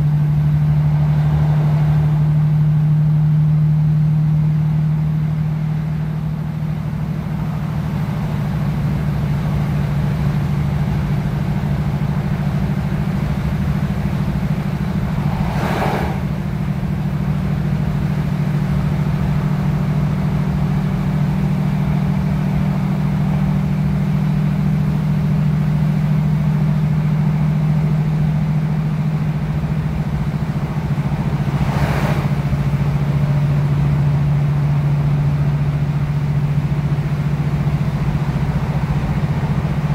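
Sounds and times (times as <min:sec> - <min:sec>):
train diesel engine drone: 0:00.0 - 0:39.9
brief rushing sounds: 0:14.6 - 0:16.8.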